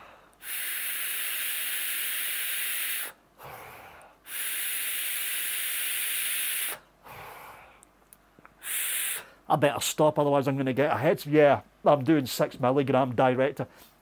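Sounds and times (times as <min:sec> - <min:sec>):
person exhaling: 0:00.0 - 0:07.8, 0:08.6 - 0:09.4
vape draw airy hiss: 0:00.4 - 0:03.6, 0:04.3 - 0:06.8, 0:08.6 - 0:09.3.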